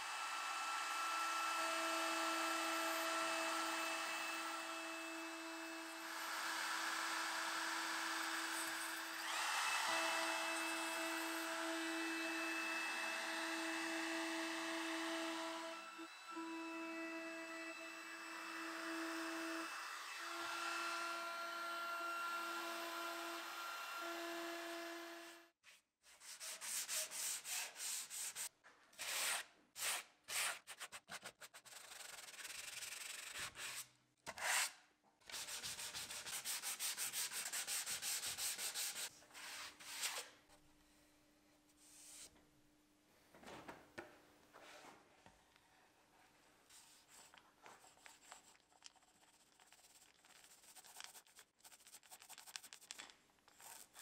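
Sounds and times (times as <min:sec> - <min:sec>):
trim router whining: 0:00.0 - 0:25.5
sanding block rubbing wood: 0:26.2 - 0:33.8, 0:35.3 - 0:40.1.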